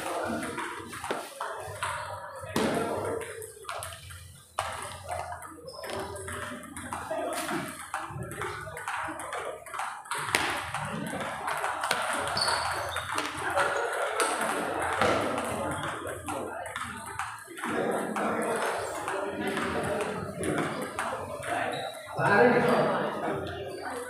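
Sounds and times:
people talking: 0.0s - 24.0s.

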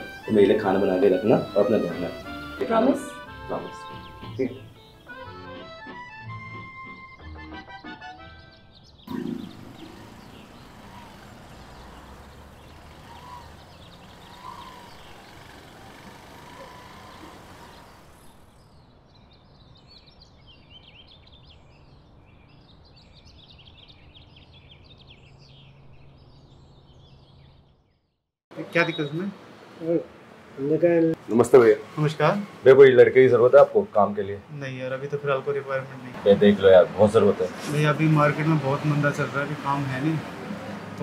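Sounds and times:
passing vehicle noise: 0.0s - 5.4s, 9.1s - 18.9s, 28.6s - 41.0s
birds chirping: 0.0s - 41.0s.

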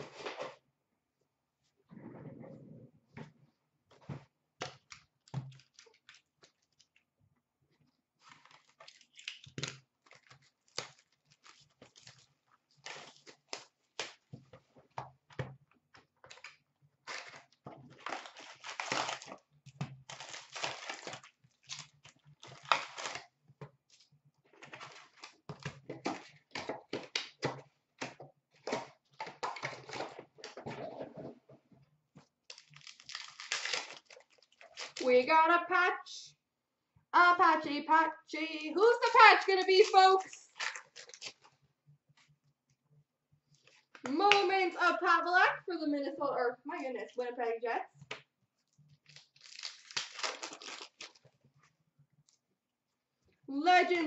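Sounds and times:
foil packs crinkling: 8.2s - 14.3s, 16.3s - 23.3s, 23.9s - 27.4s, 32.4s - 35.1s, 40.4s - 41.5s, 49.0s - 51.5s.

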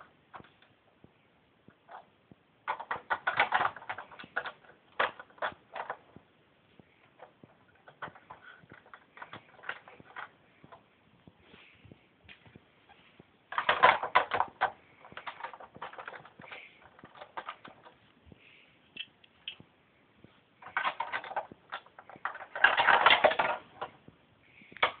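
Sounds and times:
plastic pieces clattering and clicking: 1.9s - 6.2s, 7.1s - 10.8s, 13.5s - 18.0s, 20.6s - 24.0s.

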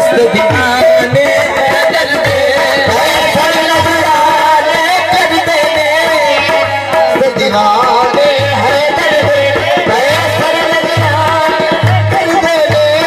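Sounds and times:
hand drum beat: 0.0s - 13.0s
harmoniums: 0.0s - 13.0s
men singing devotional song: 0.0s - 13.0s.

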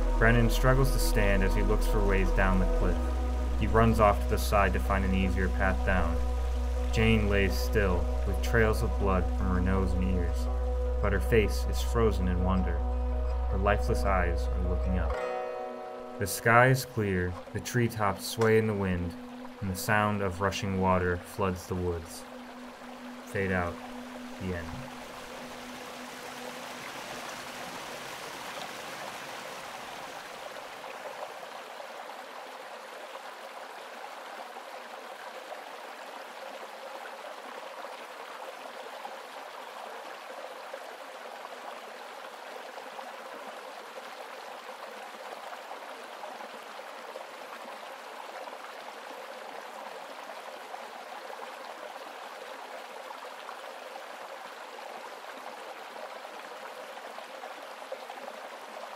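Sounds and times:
creek rushing over rocks: 16.2s - 58.9s.

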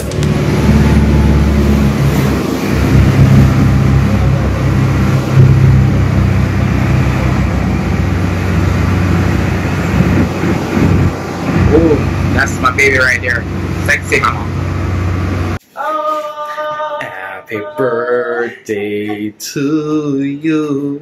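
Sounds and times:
motorboat engine drone: 0.0s - 15.6s
wind: 0.0s - 15.6s.

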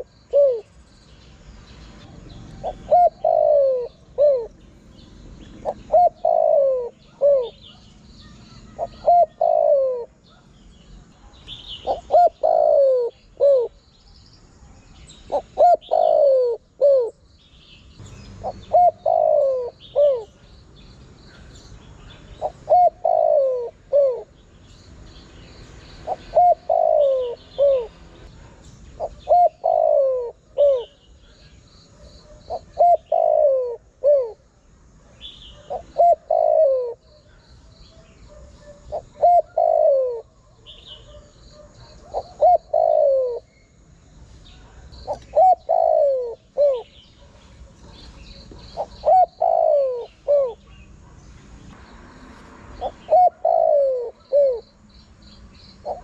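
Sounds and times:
dove cooing: 0.0s - 0.8s, 2.0s - 4.6s, 5.4s - 7.9s, 8.5s - 10.5s, 11.2s - 13.8s, 15.2s - 17.2s, 18.4s - 20.4s, 21.3s - 24.4s, 26.0s - 31.0s, 32.0s - 34.5s, 35.1s - 43.6s, 44.6s - 51.2s, 52.8s - 54.7s
small birds chirping: 0.0s - 56.0s.

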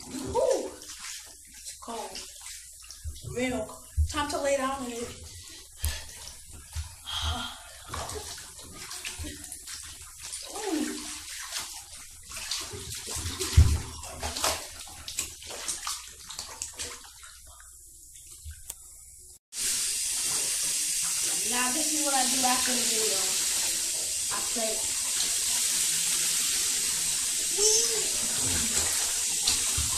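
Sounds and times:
bath water sloshing and splashing: 0.0s - 18.7s, 19.6s - 29.9s
thump against tub: 13.2s - 14.6s.

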